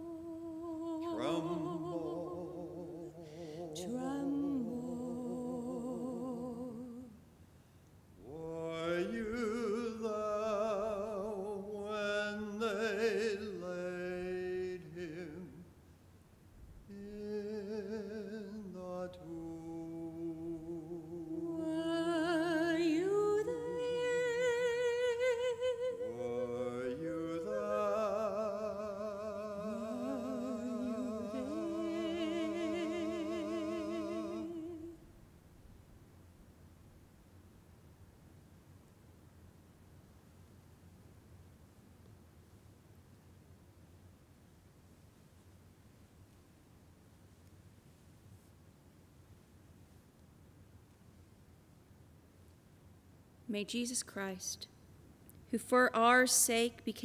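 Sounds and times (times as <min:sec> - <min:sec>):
man and woman singing duet: 0:00.0 - 0:07.2, 0:08.2 - 0:15.7, 0:16.9 - 0:35.1.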